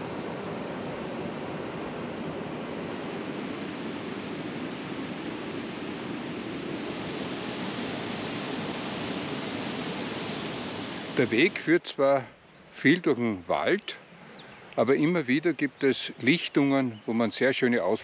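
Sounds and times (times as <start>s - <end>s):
flowing water rushing: 0.0s - 12.4s.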